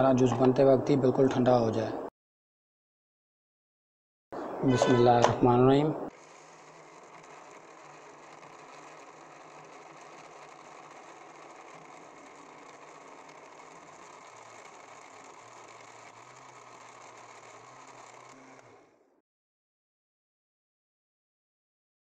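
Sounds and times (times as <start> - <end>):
electric blender running: 6.1 - 19.2.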